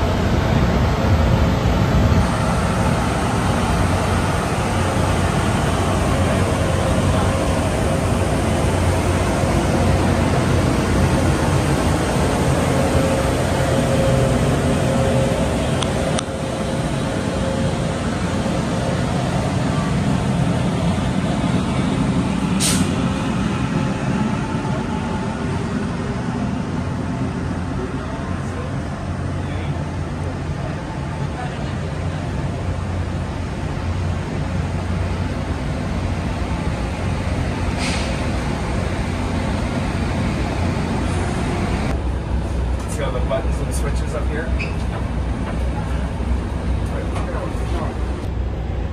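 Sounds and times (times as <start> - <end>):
train locomotive idling: 0.0 - 48.9
short hiss: 22.6 - 22.9, 37.8 - 38.2.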